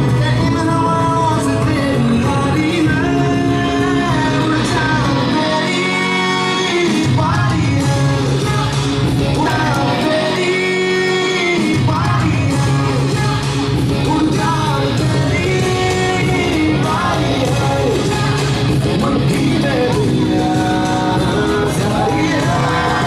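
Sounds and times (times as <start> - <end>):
pop song over loudspeakers: 0.0 - 23.0.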